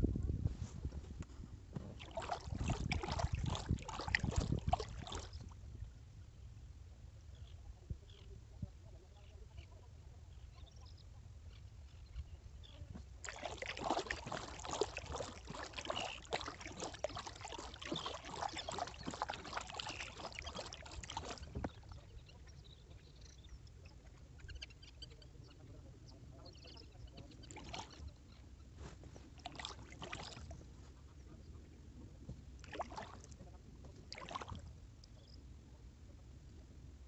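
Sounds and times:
kayak paddle splashing in water: 1.8 - 5.6, 13.2 - 22.2, 27.4 - 28.1, 28.8 - 30.6, 32.6 - 33.4, 34.0 - 34.7
water dripping off paddle: 2.0 - 5.4, 13.2 - 22.1, 29.4 - 30.4.

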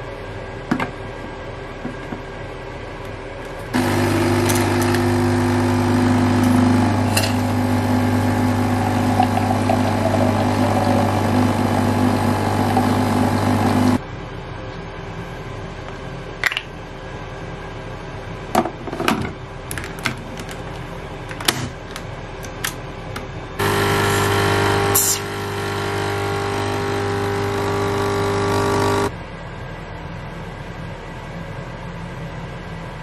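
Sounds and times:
coffee machine pump humming: 3.7 - 14.0, 23.6 - 29.1.

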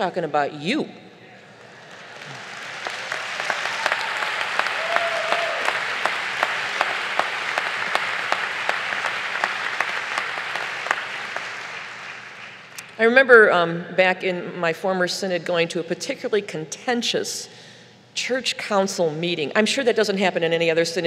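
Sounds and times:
large audience applauding: 1.6 - 12.8.

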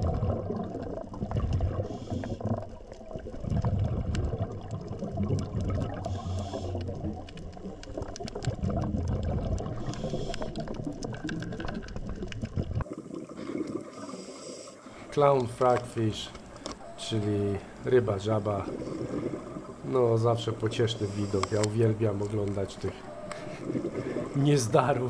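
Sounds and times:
exhaled bubbles rumbling: 0.0 - 14.3, 15.0 - 25.0
crackle of clicks: 0.1 - 12.9, 15.2 - 24.8
diver breathing through regulator: 1.8 - 2.6, 6.0 - 7.0, 9.6 - 10.8, 13.3 - 15.1, 18.7 - 19.8, 20.9 - 21.9, 23.0 - 24.4.

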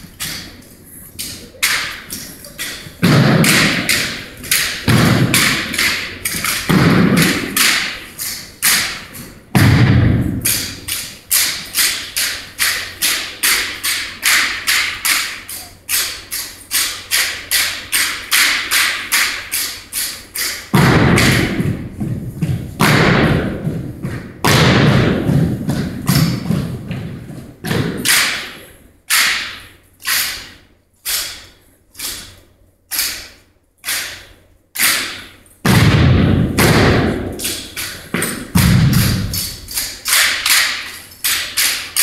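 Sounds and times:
boots and rifles striking in unison: 1.7 - 13.6, 20.4 - 29.6, 34.8 - 40.9.

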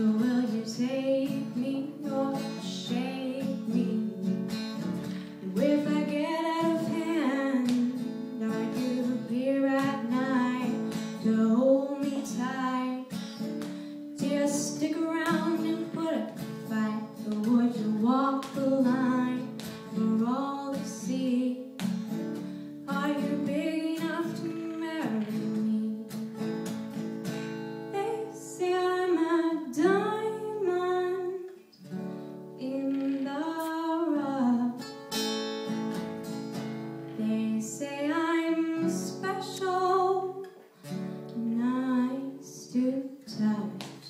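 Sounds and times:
woman singing: 0.0 - 26.3, 27.9 - 31.6, 32.6 - 34.9, 37.1 - 40.6, 41.2 - 44.0
guitar accompaniment: 0.0 - 44.0.

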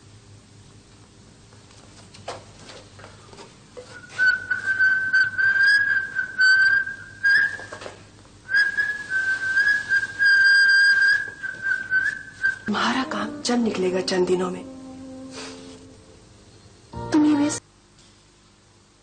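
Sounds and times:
person whistling a tune: 4.0 - 7.7, 8.5 - 12.8.

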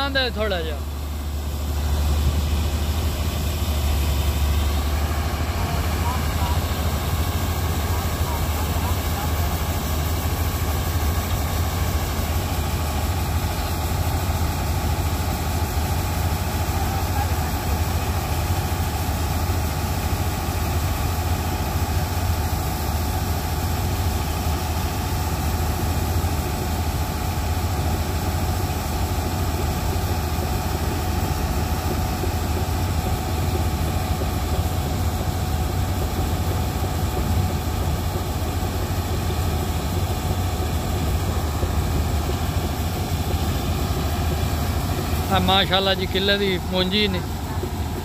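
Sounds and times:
diesel engine running: 0.0 - 48.0
faint steady whine: 35.2 - 48.0.

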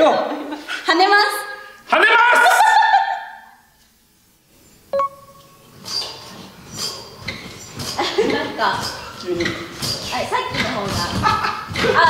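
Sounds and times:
group shouting: 1.9 - 3.5
trampoline springs pulsing: 4.9 - 12.0.

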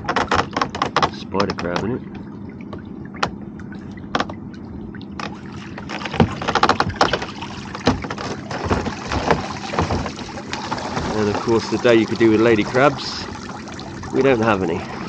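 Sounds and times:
water streaming off mesh: 5.2 - 15.0
pot knocking against hull: 5.8 - 11.8.

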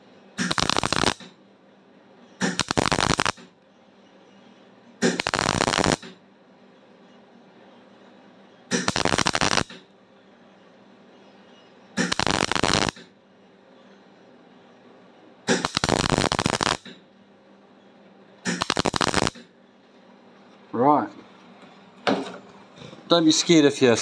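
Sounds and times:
welder arc crackling: 0.4 - 1.3, 2.4 - 3.5, 5.0 - 6.2, 8.7 - 9.8, 12.0 - 13.1, 15.5 - 17.0, 18.4 - 19.5.

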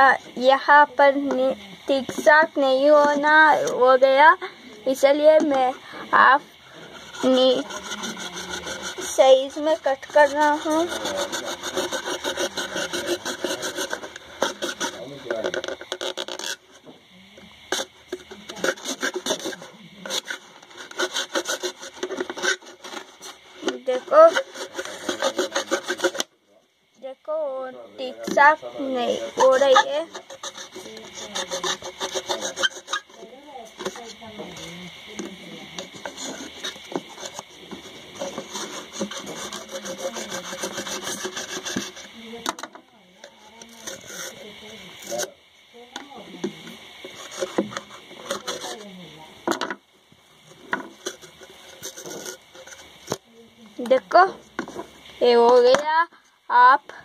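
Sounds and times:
saw rasping through plastic: 6.7 - 16.9, 17.7 - 26.3, 28.2 - 34.5, 35.8 - 42.1, 43.6 - 44.4, 47.0 - 48.8, 51.0 - 52.9.

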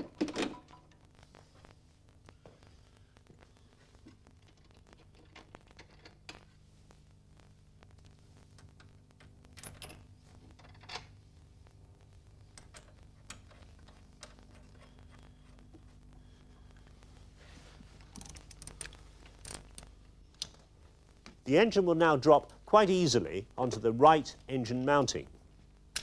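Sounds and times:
low steady hum: 0.0 - 26.0
small clicks: 18.0 - 21.4.

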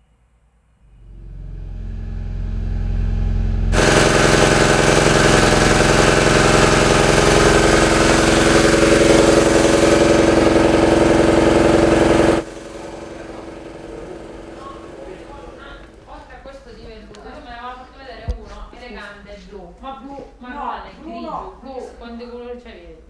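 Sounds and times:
faint hum: 0.0 - 6.3
generator engine running: 0.9 - 17.7.

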